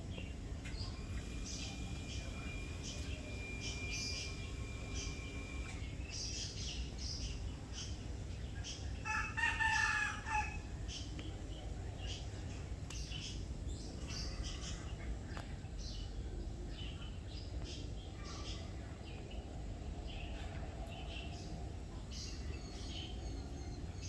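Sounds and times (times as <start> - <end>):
small birds chirping: 0.0 - 9.0, 10.8 - 24.0
rooster crowing: 9.0 - 10.7.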